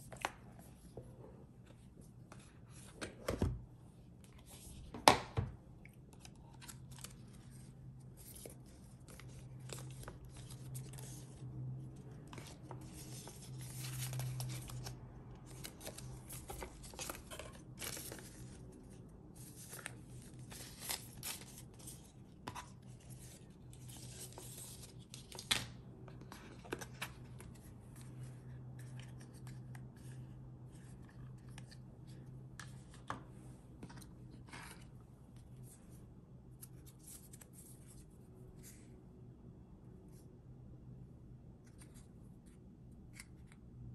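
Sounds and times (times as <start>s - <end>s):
cardboard and paper rustling: 6.2s - 28.1s.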